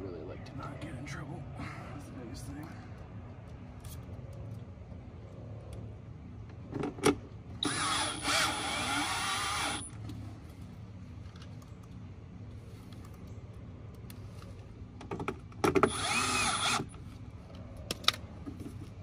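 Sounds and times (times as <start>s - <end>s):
power driver motor whine: 7.6s - 10.0s, 15.8s - 17.0s.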